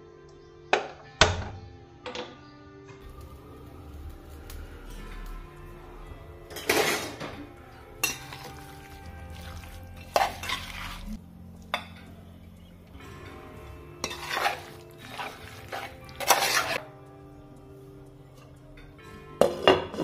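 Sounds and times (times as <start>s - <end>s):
spoon scraping a pot: 8.0s - 11.2s, 14.0s - 16.8s.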